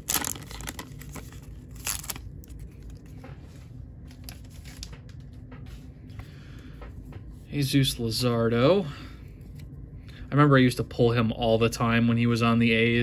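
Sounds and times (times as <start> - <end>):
wrapper crinkling: 0.0 - 3.1
trading cards rustling: 0.0 - 5.8.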